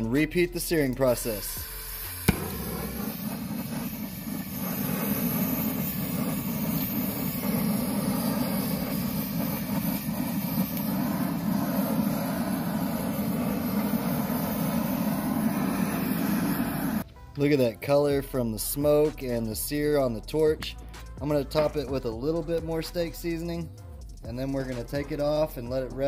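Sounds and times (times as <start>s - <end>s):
torch flame rushing: 1.3s - 17.0s.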